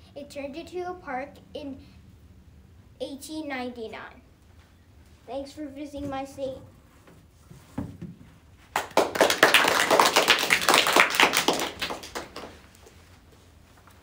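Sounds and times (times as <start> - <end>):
small group clapping: 8.7 - 12.9.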